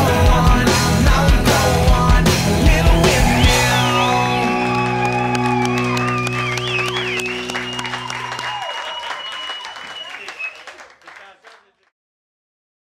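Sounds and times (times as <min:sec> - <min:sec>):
rock band holding final chord: 0:00.0 - 0:08.7.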